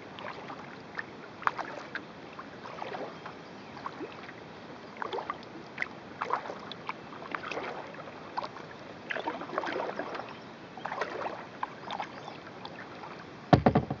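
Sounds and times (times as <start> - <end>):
kayak paddle strokes in water: 0.0 - 14.0
loud knocks: 13.5 - 14.0.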